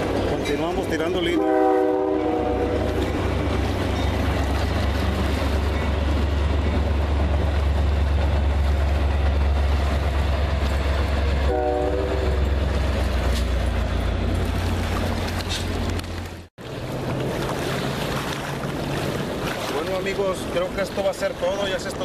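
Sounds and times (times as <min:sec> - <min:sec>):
train rumbling past: 0:00.0 - 0:22.0
train horn blast: 0:01.2 - 0:03.2, 0:11.4 - 0:12.7.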